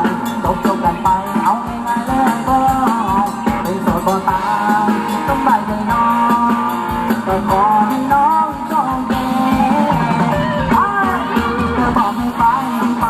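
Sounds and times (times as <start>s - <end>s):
live band playing dance music: 0.0s - 13.0s.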